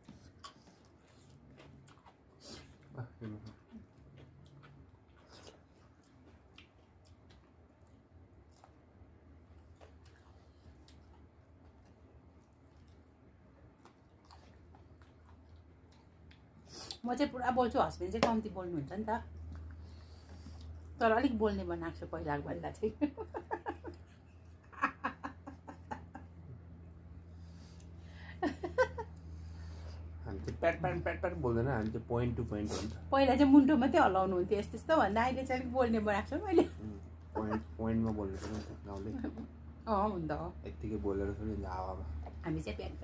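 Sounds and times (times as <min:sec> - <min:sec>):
chewing: 0:00.0 - 0:17.0, 0:19.3 - 0:21.0
low steady hum: 0:00.0 - 0:43.0.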